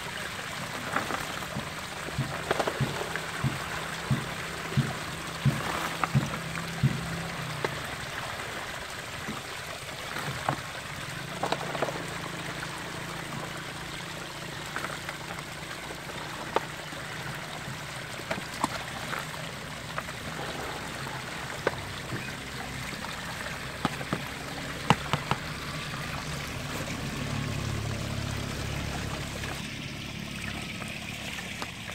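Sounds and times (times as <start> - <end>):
water trickling: 0.0 - 31.9
plastic basket and bucket clicks: 18.2 - 25.5.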